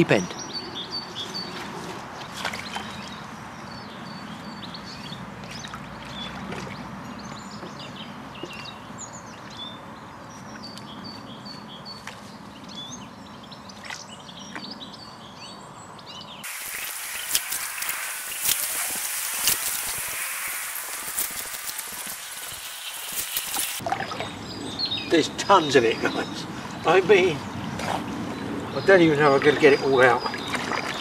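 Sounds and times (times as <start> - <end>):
small birds chirping: 0.0 - 31.0
water splashing and rushing: 16.4 - 24.3, 29.4 - 31.0.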